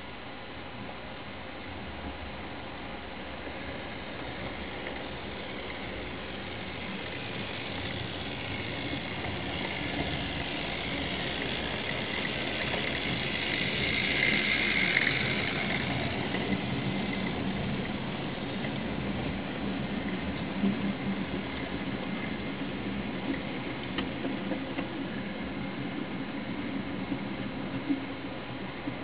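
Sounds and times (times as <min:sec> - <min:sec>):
model train rumble and motor whine: 0:00.0 - 0:29.0.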